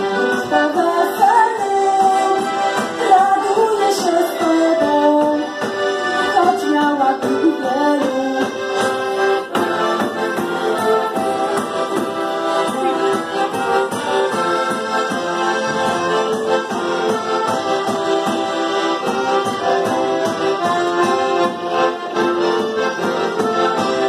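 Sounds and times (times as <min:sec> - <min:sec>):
accordion folk tune: 0:00.0 - 0:24.0.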